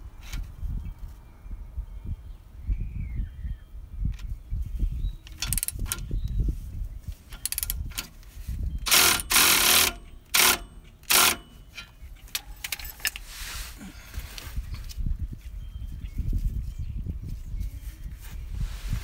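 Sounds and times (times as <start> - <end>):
tool clicks: 5.2 - 6.1, 7.3 - 8.1, 8.8 - 13.2
cordless ratchet spinning bolt: 5.3 - 6.1, 7.3 - 8.1, 8.8 - 13.3.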